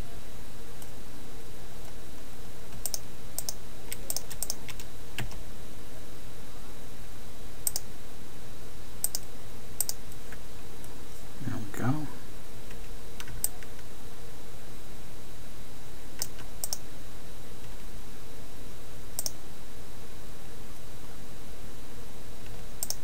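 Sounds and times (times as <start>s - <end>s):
low hum and hiss: 0.0s - 23.0s
keyboard and mouse clicks: 2.7s - 5.4s, 7.7s - 7.9s, 9.0s - 9.2s, 9.8s - 10.4s, 16.2s - 16.8s, 19.2s - 19.4s, 22.8s - 23.0s.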